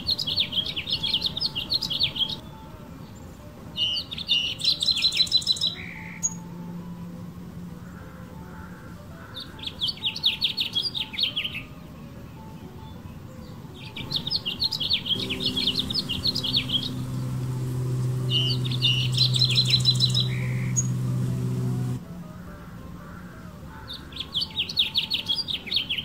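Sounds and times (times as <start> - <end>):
finch singing warbling song: 0.0 - 6.6, 8.7 - 26.0
low steady hum: 14.0 - 22.8.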